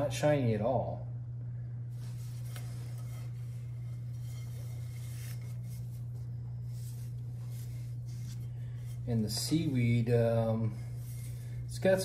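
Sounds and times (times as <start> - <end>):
steady low hum: 0.0 - 12.0
gloved hands rubbing ceramic bowl: 1.9 - 12.0.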